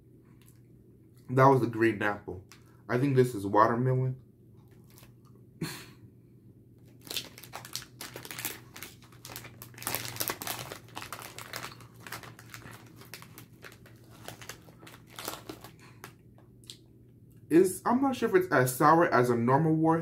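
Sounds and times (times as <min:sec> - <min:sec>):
plastic bag crinkling: 0:04.7 - 0:05.2, 0:06.8 - 0:16.2.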